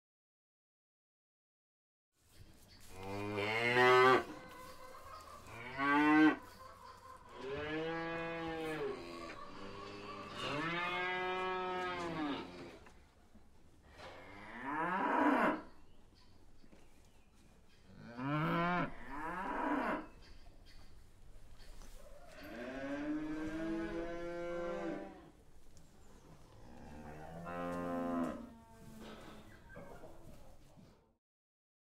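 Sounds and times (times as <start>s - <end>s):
cattle mooing: 3.0s - 4.4s, 5.5s - 6.5s, 7.4s - 12.8s, 18.0s - 20.1s, 22.4s - 25.3s, 26.6s - 29.0s.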